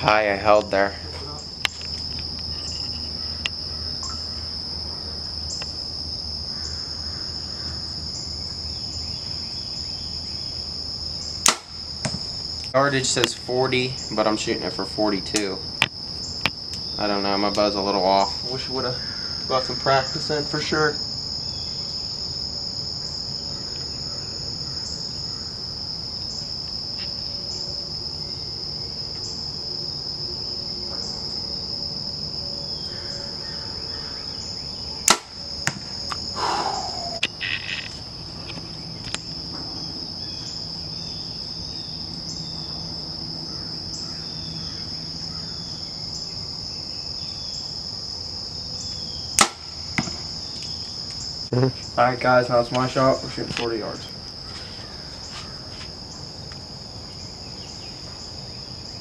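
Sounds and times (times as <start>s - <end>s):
crickets and insects trilling: 0.0s - 59.0s
bow string snapping: 11.4s - 13.3s, 35.1s - 36.2s.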